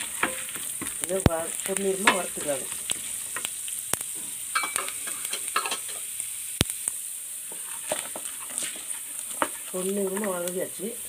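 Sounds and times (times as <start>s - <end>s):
lentils sizzling in oil: 0.0s - 11.0s
wooden spatula scraping pan: 7.5s - 10.5s.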